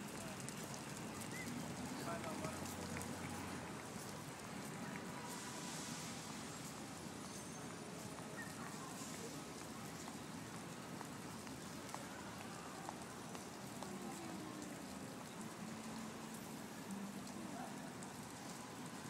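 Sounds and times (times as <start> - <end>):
splashing water hiss: 0.2 - 7.2.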